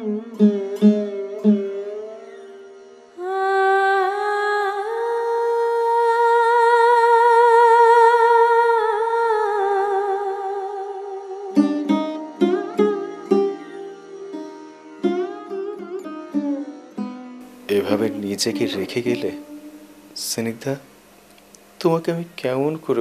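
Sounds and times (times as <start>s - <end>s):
plucked string notes: 0.0s - 5.2s, 10.1s - 23.0s
wordless melody with vibrato: 0.0s - 23.0s.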